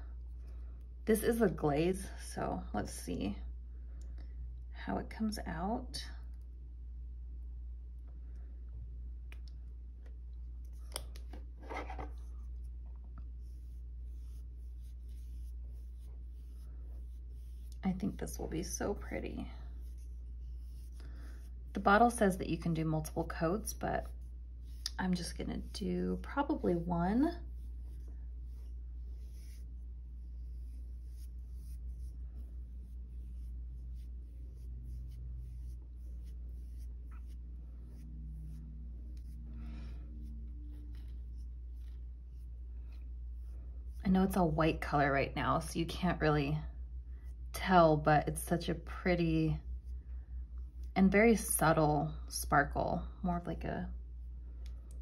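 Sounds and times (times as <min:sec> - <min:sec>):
low steady hum: 0:00.0 - 0:55.0
paintbrush rubbing: 0:10.6 - 0:45.0
scratchy brush strokes: 0:10.6 - 0:46.4, 0:47.0 - 0:51.8.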